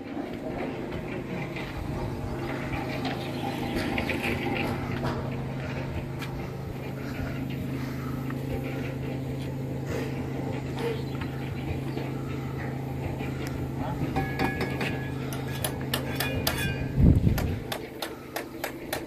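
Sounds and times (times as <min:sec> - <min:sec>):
distant voices: 0:00.0 - 0:19.0
low machine hum: 0:00.0 - 0:19.0
masons' tools clicking and knocking: 0:10.6 - 0:19.0.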